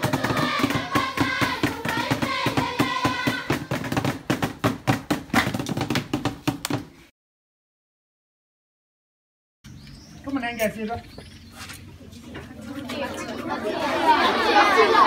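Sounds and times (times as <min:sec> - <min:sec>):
people singing together: 0:00.0 - 0:03.9
people clapping in rhythm: 0:00.0 - 0:06.8.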